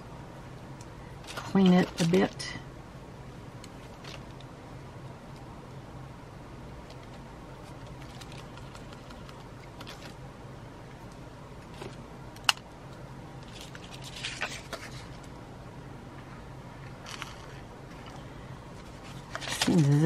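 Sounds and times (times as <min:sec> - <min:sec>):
steady low hum: 0:00.0 - 0:20.0
paper rustle: 0:07.0 - 0:10.2, 0:13.4 - 0:15.3, 0:18.8 - 0:20.0.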